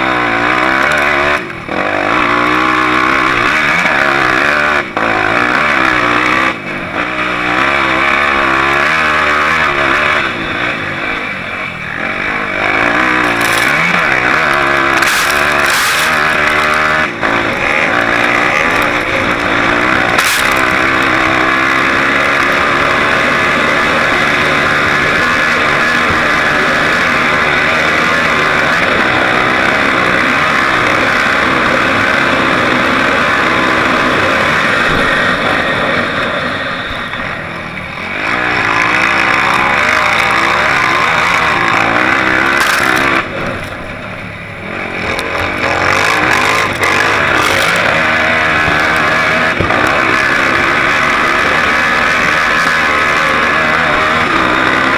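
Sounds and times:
off-road vehicle engine revving: 0.0 - 54.9.

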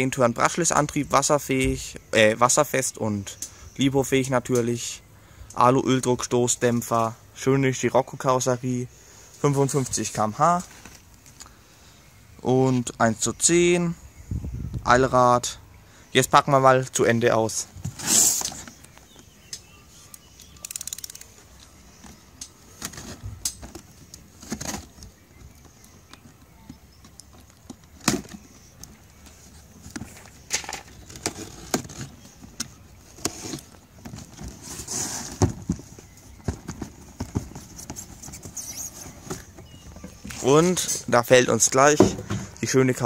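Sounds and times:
cardboard box knocks and scrapes: 34.1 - 40.2.

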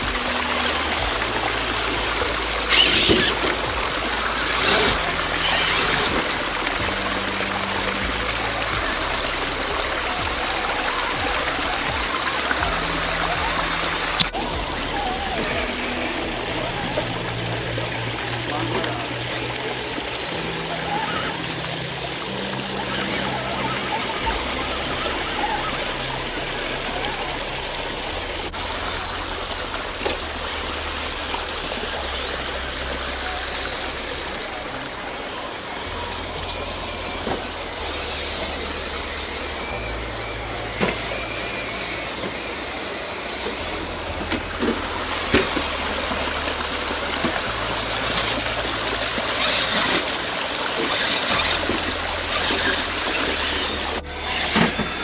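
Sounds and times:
creek water running over rocks: 0.0 - 55.0
high whine of electric motor: 0.0 - 55.0
toy truck clicking on rocks: 2.0 - 3.6, 4.3 - 6.3, 47.0 - 48.5, 49.2 - 55.0.

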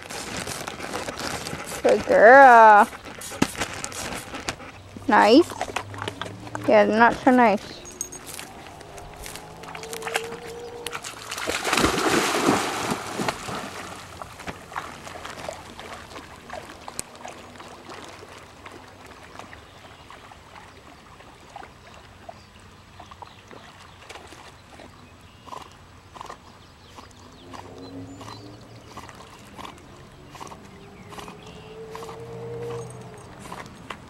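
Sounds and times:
water sloshing and lapping: 0.0 - 34.0
dog splashing into water: 8.3 - 19.6.

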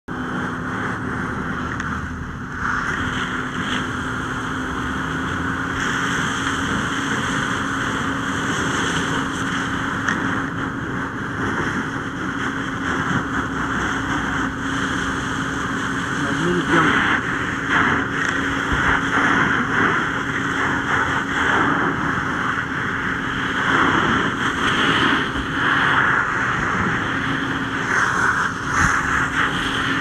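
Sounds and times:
engine drone: 0.0 - 30.0
hose water spraying: 2.6 - 30.0.

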